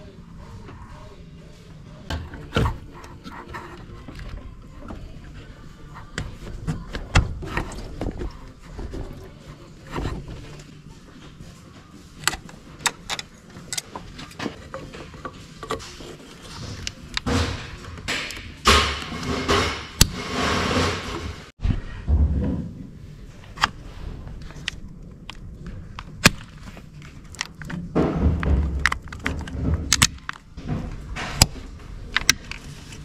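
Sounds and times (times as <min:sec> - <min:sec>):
scraping and rubbing: 0:12.0 - 0:24.9
hand tools clicking and knocking: 0:12.2 - 0:21.4, 0:27.3 - 0:31.6.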